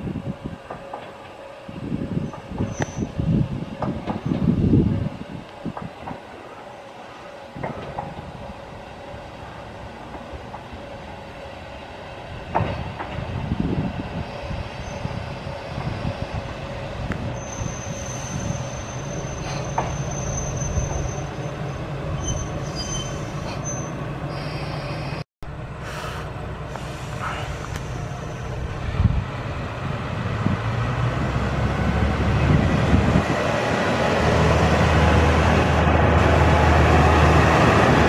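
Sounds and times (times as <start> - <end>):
train wheels on rails: 0.0 - 25.2, 25.8 - 38.0
diesel railcar engine: 0.0 - 38.0
high squeal from running gear: 2.2 - 3.1, 17.4 - 25.2.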